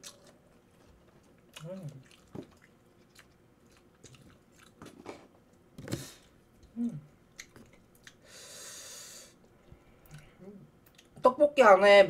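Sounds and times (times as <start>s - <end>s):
close chewing and biting: 0.0s - 5.3s, 6.2s - 8.2s.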